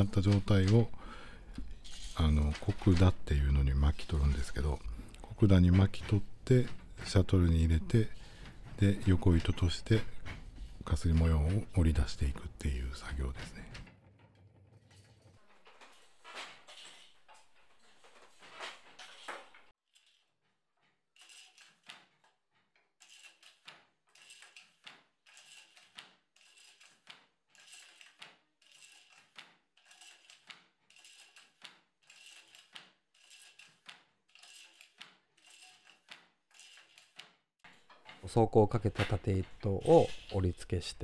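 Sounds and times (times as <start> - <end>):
handloom swishing knocks: 0.0 - 20.2, 21.2 - 41.0.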